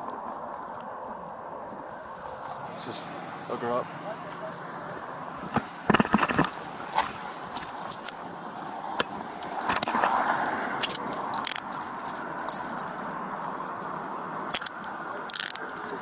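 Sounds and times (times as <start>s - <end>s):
handcuffs ratcheting shut: 6.0s - 16.0s
metallic jangling: 10.4s - 16.0s.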